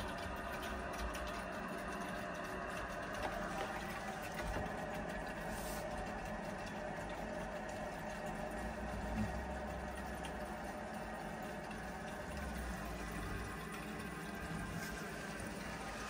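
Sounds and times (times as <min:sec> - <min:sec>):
water rushing through pipes: 0:00.0 - 0:16.0.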